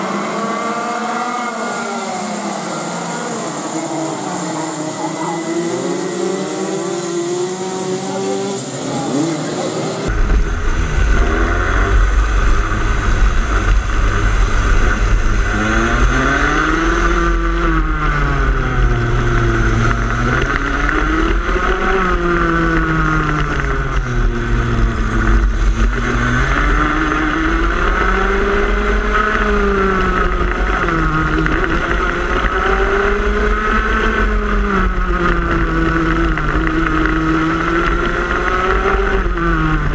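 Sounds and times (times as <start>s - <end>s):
go-kart engine revving: 0.0s - 39.9s
go-kart engines passing: 0.0s - 39.9s
low rumble: 10.1s - 32.3s.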